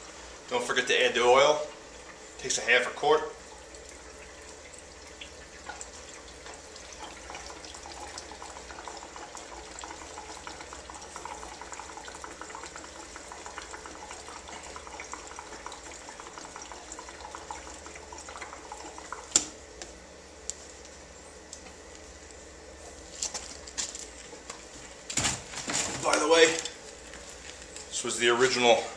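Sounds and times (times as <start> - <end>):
liquid pouring and gurgling: 0.4 - 19.7.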